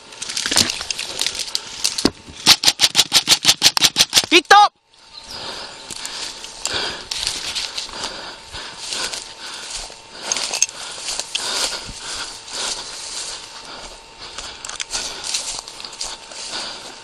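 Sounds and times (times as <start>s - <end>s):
footsteps crunching dry grass: 0.0s - 2.9s, 4.9s - 17.0s
leaves and stems rustling: 5.0s - 17.0s.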